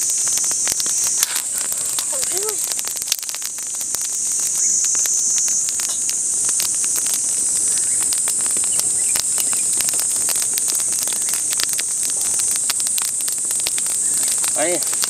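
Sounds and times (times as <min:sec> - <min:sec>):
insects chorus: 0:00.0 - 0:15.0
sharp clicks and crackles: 0:00.0 - 0:15.0.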